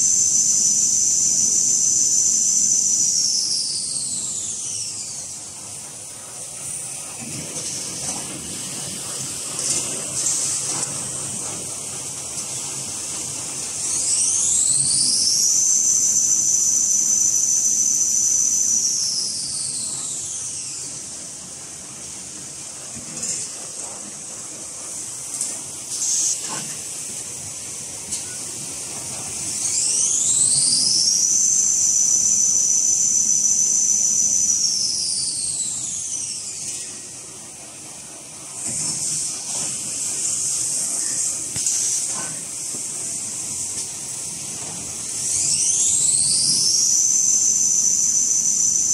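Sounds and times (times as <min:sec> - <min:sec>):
machinery hiss: 0:00.0 - 0:48.9
machine motor whine: 0:38.5 - 0:48.9.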